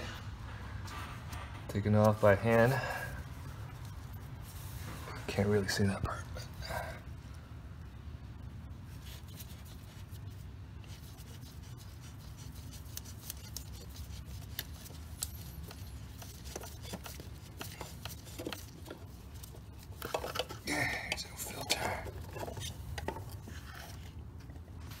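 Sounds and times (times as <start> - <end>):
low steady hum: 0.0 - 25.0
gloved hand rubbing: 8.8 - 25.0
small clicks and scrapes: 9.0 - 25.0.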